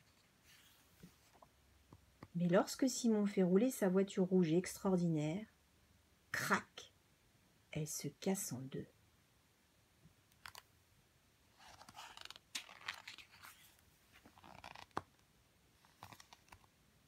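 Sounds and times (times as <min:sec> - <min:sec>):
book page rustling: 0:11.6 - 0:15.2, 0:15.8 - 0:16.7
paper snap: 0:12.2 - 0:13.2.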